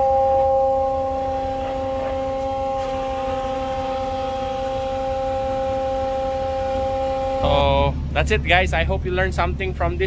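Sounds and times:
hydraulic winch whine: 0.0 - 8.1
low rumble: 0.0 - 10.0.

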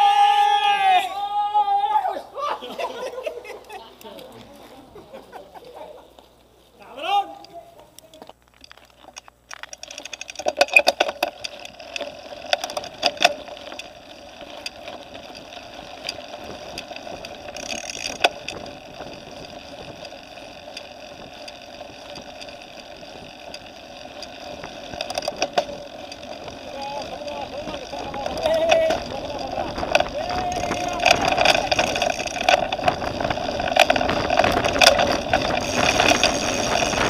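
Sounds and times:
bike rolling on gravel: 2.7 - 37.0
bike rattling and knocking: 8.2 - 37.0.

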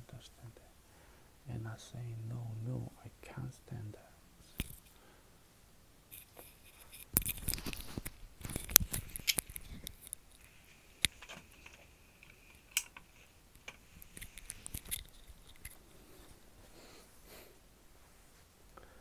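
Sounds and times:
handling clicks and rustling: 6.1 - 16.4.

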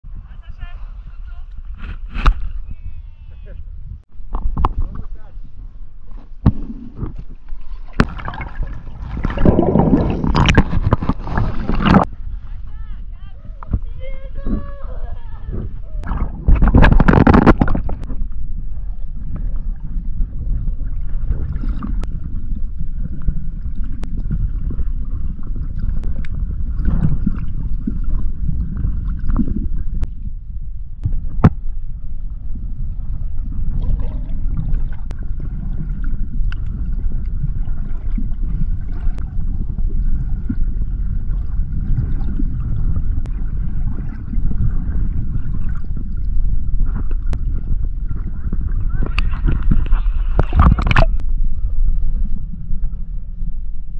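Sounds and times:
muffled underwater rumble: 0.1 - 53.9.

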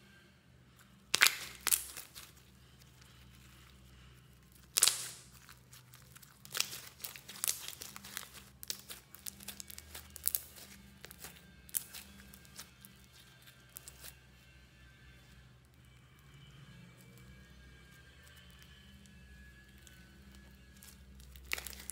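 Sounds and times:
hands squishing bead slime: 0.9 - 15.2, 16.9 - 21.9
slime snapping: 1.1 - 2.4, 4.5 - 14.1, 20.8 - 21.9.

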